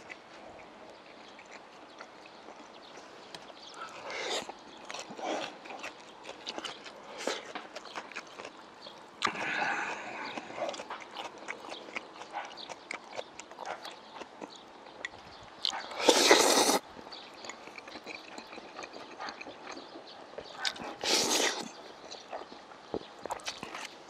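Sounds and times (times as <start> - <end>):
soft chewing and mouth clicks: 0.0 - 24.0
person slurping noodles: 16.0 - 16.8, 20.9 - 21.7.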